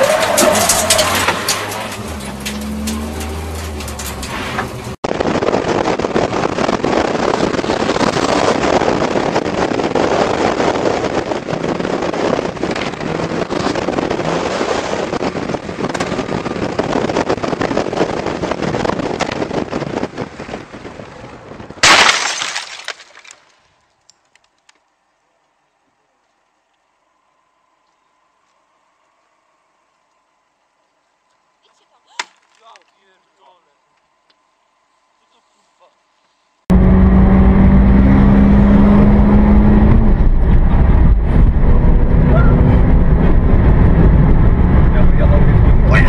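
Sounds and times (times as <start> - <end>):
rally car engine running: 0.0 - 21.8, 36.7 - 46.0
loud rushing noise with crackles: 4.2 - 21.8.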